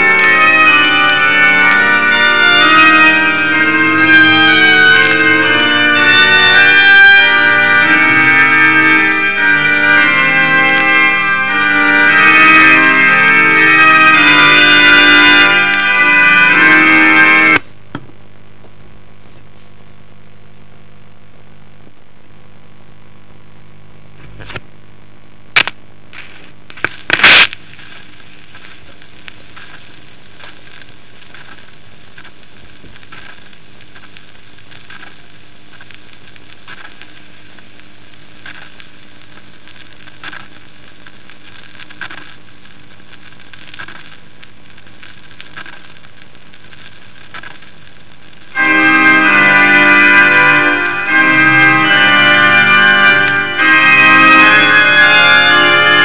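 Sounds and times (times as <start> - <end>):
vinyl crackles: 0.0 - 56.0
vinyl record hiss: 0.0 - 56.0
vinyl pops: 17.5 - 48.6
faint hum: 17.6 - 48.6.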